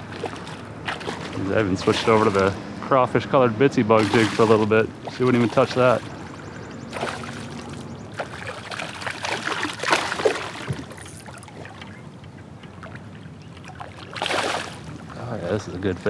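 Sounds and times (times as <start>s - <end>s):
fish splashing at the surface: 0.0s - 2.6s, 3.9s - 12.0s, 12.7s - 15.0s.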